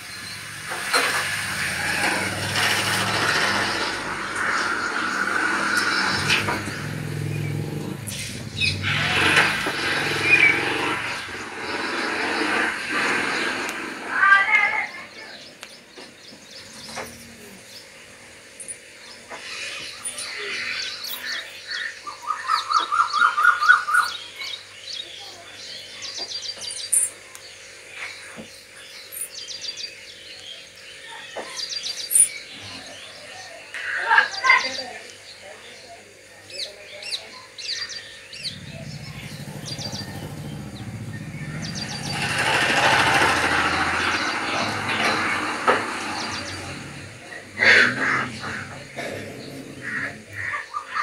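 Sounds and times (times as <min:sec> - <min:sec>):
low pulsing engine rumble: 0:00.0 - 0:14.4, 0:37.8 - 0:50.6
hiss: 0:00.0 - 0:14.6, 0:38.5 - 0:49.3
small birds chirping: 0:00.0 - 0:51.0.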